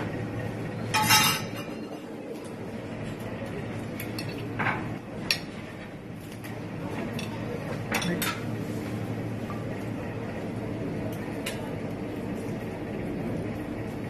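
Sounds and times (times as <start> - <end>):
low background hum: 0.0 - 14.0
metal tongs clinking on plate: 0.9 - 2.0.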